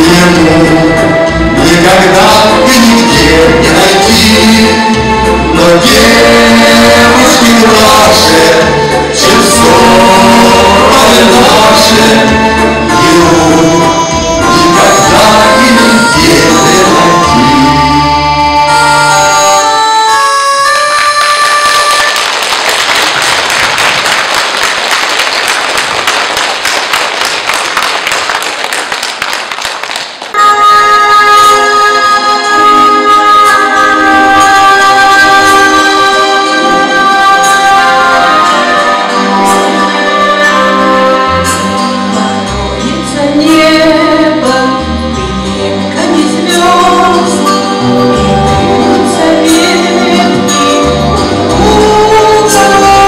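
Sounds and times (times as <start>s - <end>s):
instrumental accompaniment with bass: 0.0s - 24.0s, 30.3s - 53.0s
loud music: 0.0s - 24.7s, 30.3s - 53.0s
audience applauding: 20.8s - 30.4s
woman singing into microphone: 42.8s - 44.9s, 45.9s - 47.6s, 48.9s - 53.0s.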